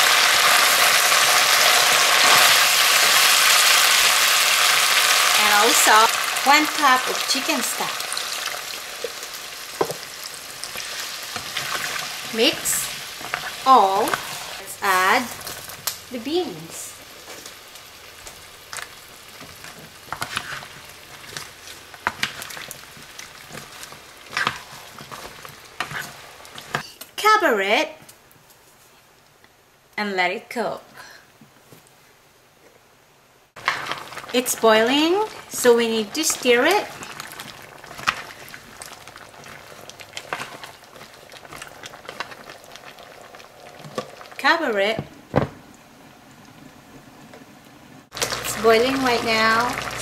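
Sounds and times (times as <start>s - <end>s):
food sizzling in a frying pan: 0.0s - 26.8s, 33.6s - 50.0s
utensil scraping and clacking on pan: 19.4s - 26.8s.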